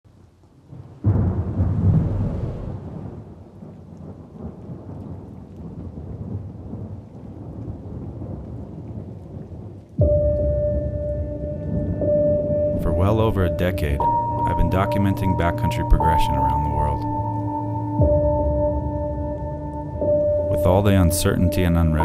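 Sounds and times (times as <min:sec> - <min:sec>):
thunder rumbling: 0:00.1 - 0:22.0
sustained musical tones: 0:10.0 - 0:22.0.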